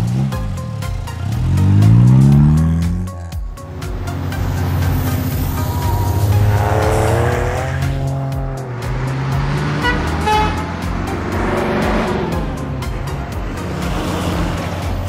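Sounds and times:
background music with steady beat: 0.0 - 15.0
cartoon vehicle sound effects: 0.0 - 15.0
horn-like toots: 4.1 - 12.4.

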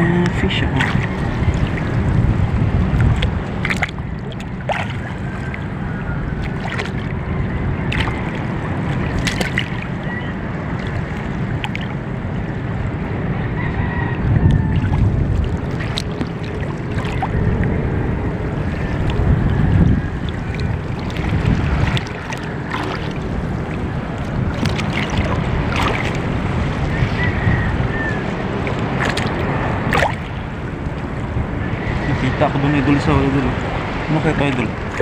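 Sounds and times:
water lapping around a boat: 0.0 - 35.0
wind on the microphone: 0.0 - 35.0
boat knocks and clicks: 8.9 - 9.9.

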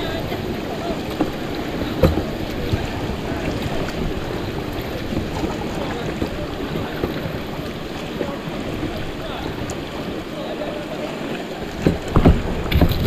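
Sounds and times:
river current rushing: 0.0 - 13.0.

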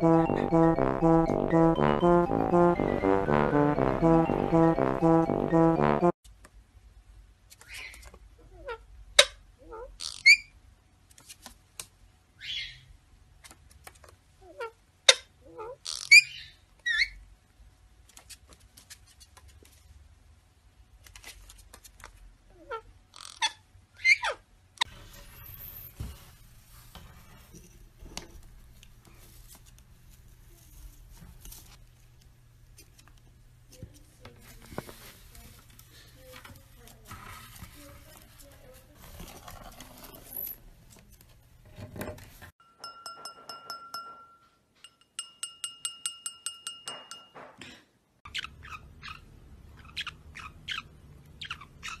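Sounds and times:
beak tapping wine glass: 42.8 - 47.4
parrot chirping: 48.3 - 52.0.

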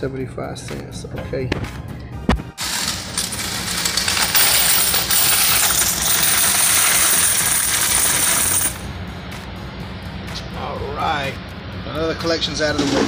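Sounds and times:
coins pouring into a box: 2.6 - 8.8.

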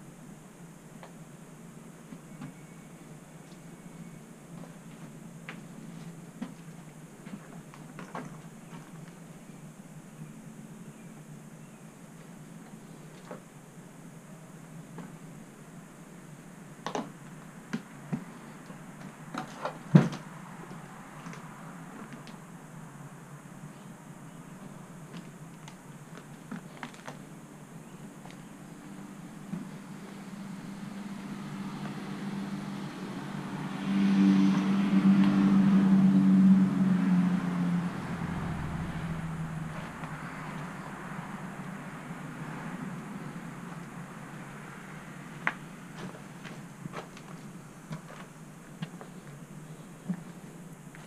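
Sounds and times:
low background hum: 0.0 - 51.0
knocks and clunks: 19.3 - 20.3.

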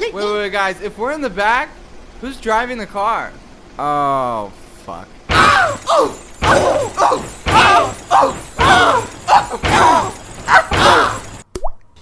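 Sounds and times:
person screaming: 5.3 - 11.3.

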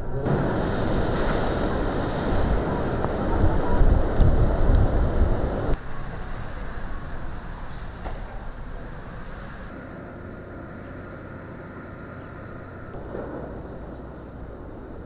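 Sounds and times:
wind gusts buffeting microphone: 0.0 - 8.0
strong wind and driving rain: 0.0 - 10.6.

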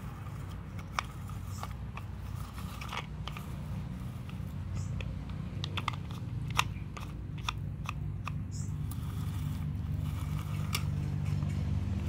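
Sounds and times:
plastic toy clicks and clacks: 0.0 - 11.6.

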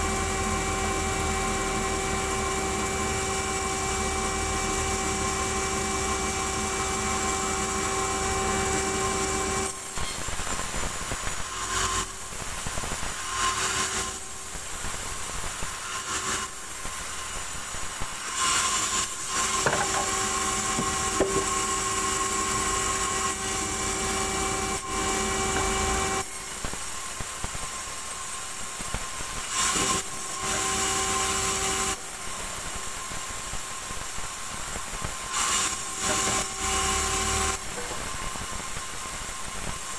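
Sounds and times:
band saw cutting log: 0.0 - 10.7, 13.1 - 14.3, 18.1 - 26.7, 29.3 - 32.2, 35.2 - 38.3.

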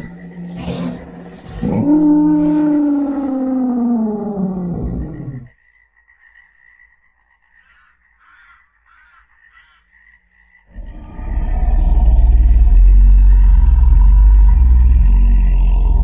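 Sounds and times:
faint croaking calls: 0.0 - 16.0
deep rumble: 10.8 - 16.0.

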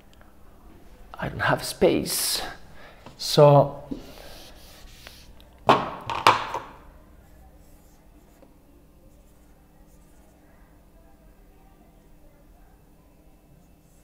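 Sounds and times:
eraser swiping whiteboard: 3.9 - 5.3
marker drawing on whiteboard: 3.9 - 5.3.

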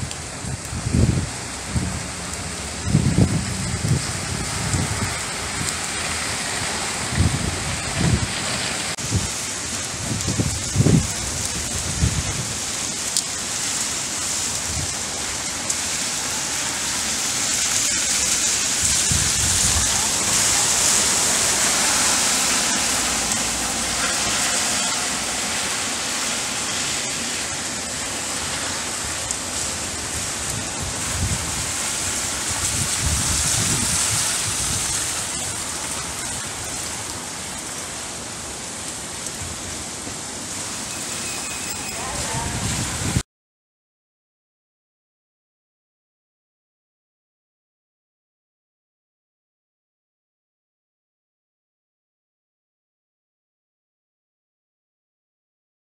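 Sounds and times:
rain on wet street: 0.0 - 43.2.

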